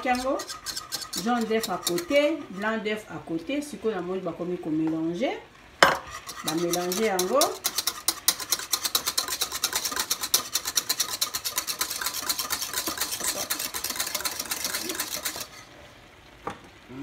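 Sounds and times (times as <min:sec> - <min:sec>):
whisk beating eggs in plastic bowl: 0:00.0 - 0:02.7, 0:06.1 - 0:15.7.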